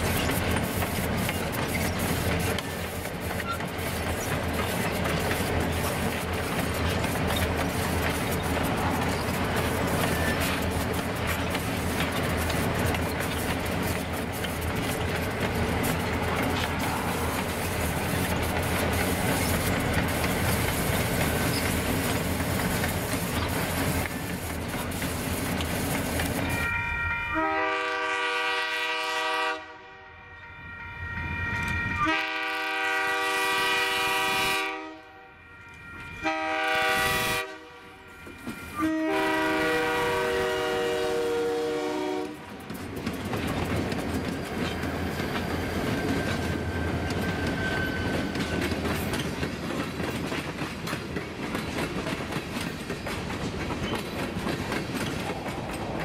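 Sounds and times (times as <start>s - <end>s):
wheels clicking over rail joints: 0.0s - 26.7s, 42.2s - 56.0s
locomotive air horn blasts: 26.5s - 30.4s, 31.8s - 42.5s.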